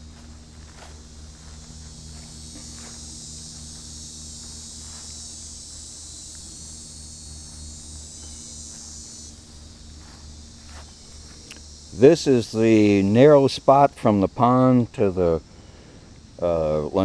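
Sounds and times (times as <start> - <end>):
footsteps on grass: 0.0 - 12.0
high-pitched insect chorus: 0.0 - 17.0
low steady hum: 0.0 - 17.0.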